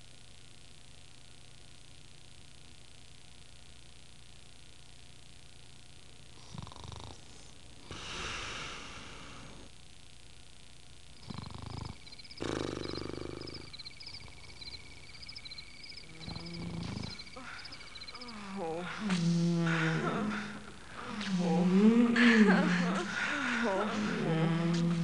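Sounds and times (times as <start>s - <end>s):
person snoring: 6.4s - 9.7s, 11.2s - 14.8s, 16.0s - 25.0s
high chirps: 11.4s - 25.0s.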